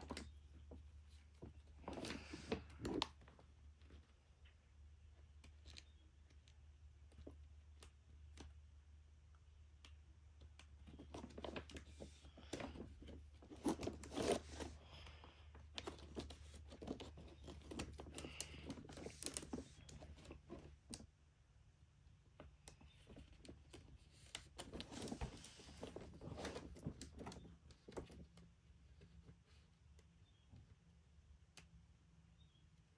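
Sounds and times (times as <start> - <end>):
plastic folder crinkles and clicks: 15.7 - 21.0.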